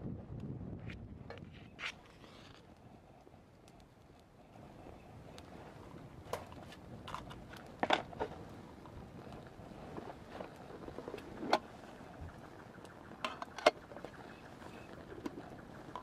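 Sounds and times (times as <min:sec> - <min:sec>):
fire crackles and pops: 0:00.0 - 0:16.0
fuel burning in small stove: 0:00.0 - 0:16.0.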